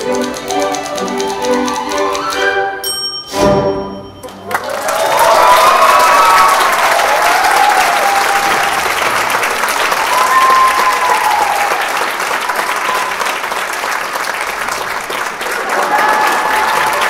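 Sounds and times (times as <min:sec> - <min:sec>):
audience applauding: 0:04.2 - 0:17.0
audience cheering: 0:04.4 - 0:17.0.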